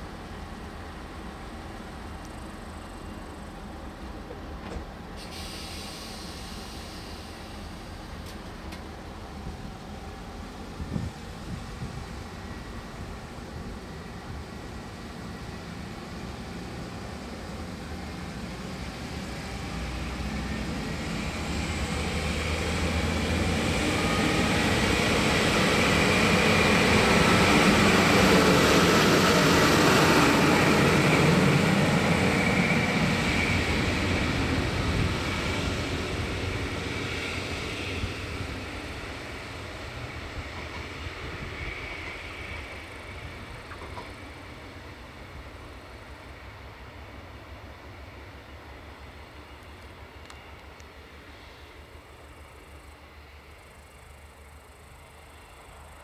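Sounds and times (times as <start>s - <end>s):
train wheels rolling on rails: 0.0s - 56.0s.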